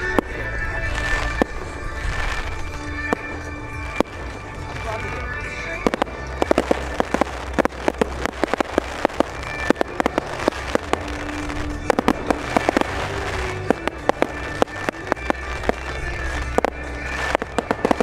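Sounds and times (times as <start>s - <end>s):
crackling pops: 0.0s - 18.0s
fireworks bursting: 0.0s - 18.0s.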